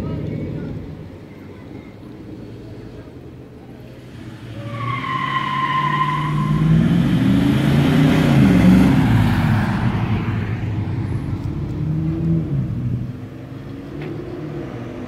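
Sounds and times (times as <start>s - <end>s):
high tire squeal: 4.4s - 7.1s.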